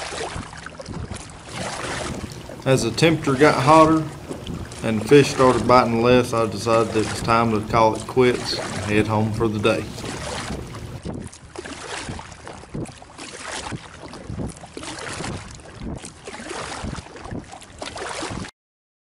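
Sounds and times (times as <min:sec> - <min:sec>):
kayak paddle splashing in water: 0:00.0 - 0:18.5
wind on microphone: 0:00.2 - 0:11.5, 0:13.6 - 0:16.1.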